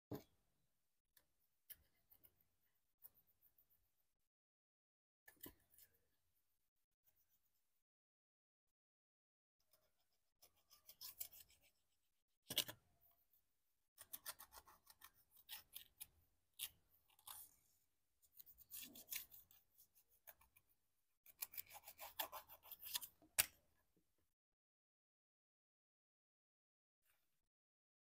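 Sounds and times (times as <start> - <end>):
stick scraping a card: 18.3 - 20.6.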